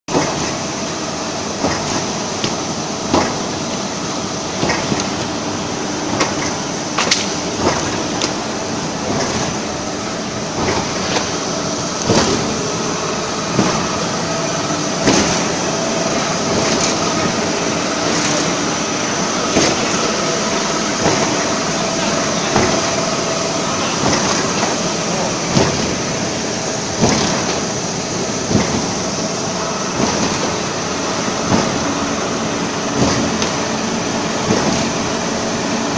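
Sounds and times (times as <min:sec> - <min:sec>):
veneer cutter machine humming: 0:00.1 - 0:35.9.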